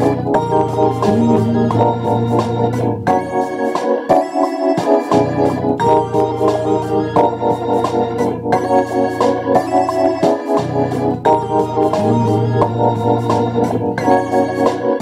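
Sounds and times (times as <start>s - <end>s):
electric bass groove: 0.0s - 4.0s, 4.9s - 15.0s
organ chords: 0.0s - 15.0s
beat of sharp hits: 0.3s - 3.9s.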